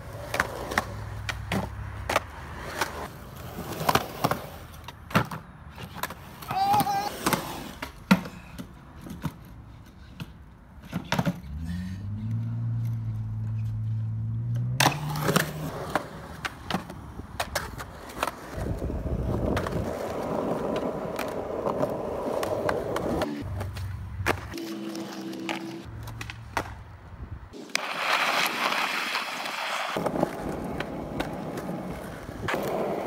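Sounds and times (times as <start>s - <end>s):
skateboard clacking on concrete: 0.0s - 11.4s, 14.8s - 26.8s, 27.5s - 33.0s
skateboard wheels rumbling: 0.0s - 12.2s, 14.8s - 26.8s, 27.5s - 33.0s
skateboard loud smack: 25.5s - 26.8s.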